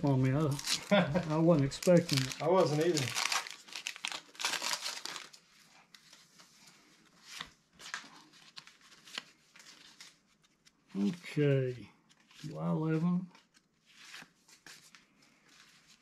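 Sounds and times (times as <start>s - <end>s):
wax paper wrapper tearing: 0.0s - 5.4s.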